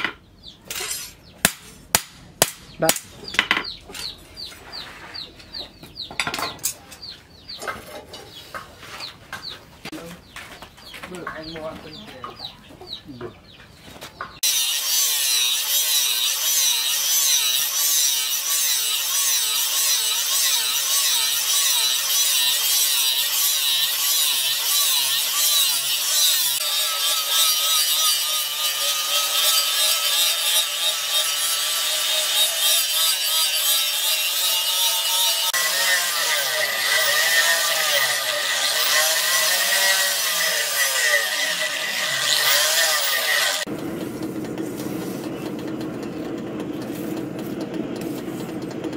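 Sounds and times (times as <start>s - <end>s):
angle grinder grinding steel: 14.4s - 48.9s.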